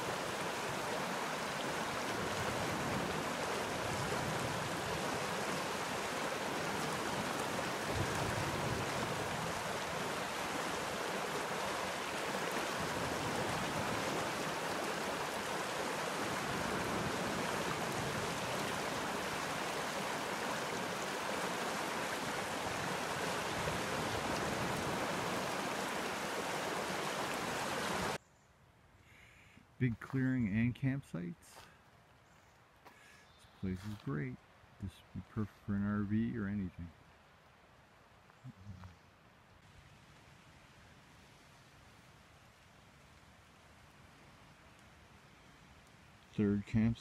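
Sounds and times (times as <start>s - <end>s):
creek rushing over stones: 0.0s - 28.2s.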